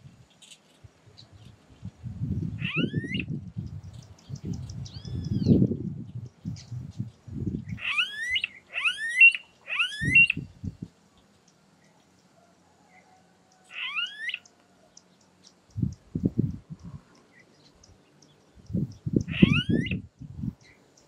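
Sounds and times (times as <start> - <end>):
bird whining whistled call: 2.6 - 3.3, 7.8 - 10.5, 13.8 - 14.4, 19.3 - 20.0.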